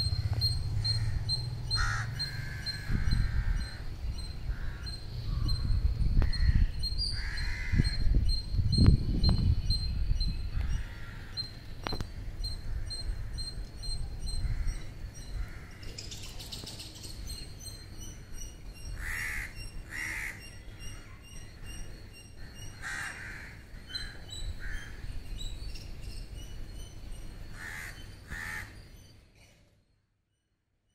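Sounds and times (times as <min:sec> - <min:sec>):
low rumble: 0:00.0 - 0:07.1
small birds chirping: 0:00.0 - 0:30.0
crows cawing: 0:00.8 - 0:03.8, 0:04.5 - 0:05.5, 0:06.3 - 0:08.0, 0:10.6 - 0:11.4, 0:14.4 - 0:15.8, 0:19.0 - 0:20.4, 0:22.4 - 0:25.0, 0:27.6 - 0:28.8.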